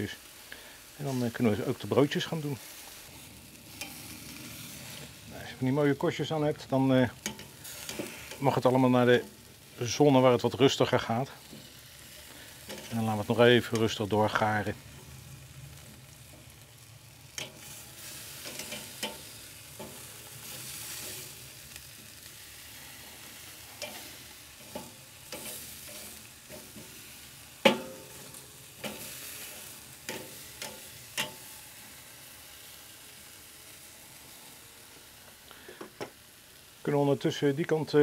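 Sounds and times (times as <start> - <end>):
meat sizzling on grill: 0.0 - 38.0
metal tongs clacking on grate: 3.8 - 4.0, 7.2 - 8.4, 12.7 - 12.9, 17.3 - 21.2, 23.7 - 26.9, 27.6 - 31.4.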